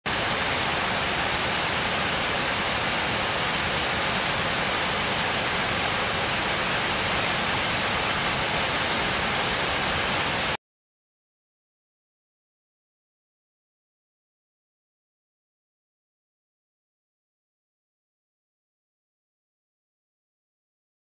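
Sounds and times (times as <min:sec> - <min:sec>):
falling water rushing: 0:00.1 - 0:10.6.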